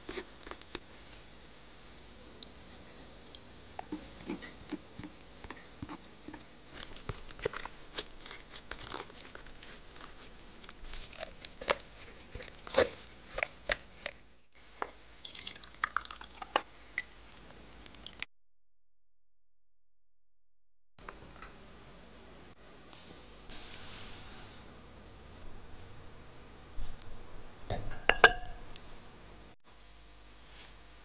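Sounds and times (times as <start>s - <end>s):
spatula squishing pulp in strainer: 3.8s - 14.3s.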